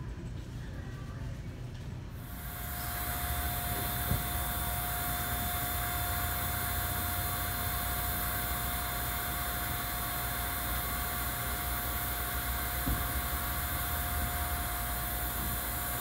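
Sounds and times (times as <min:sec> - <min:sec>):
gas hissing: 0:02.2 - 0:16.0
mid-pitched whine: 0:02.2 - 0:16.0.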